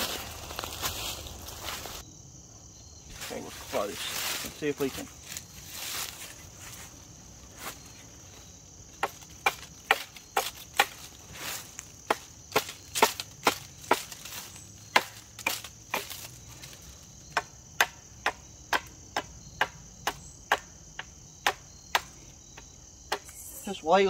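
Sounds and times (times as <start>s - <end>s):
hatchet chopping wood: 9.0s - 11.1s, 12.0s - 14.3s, 14.9s - 16.3s, 17.3s - 22.2s.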